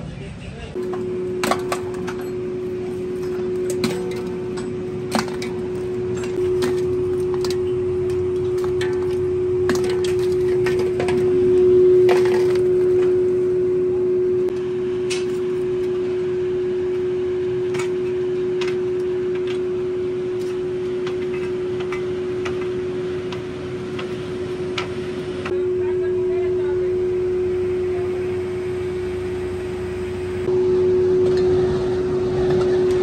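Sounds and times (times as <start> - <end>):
steady machine hum: 0.0 - 33.0
clinks and knocks of lumps: 0.8 - 13.2.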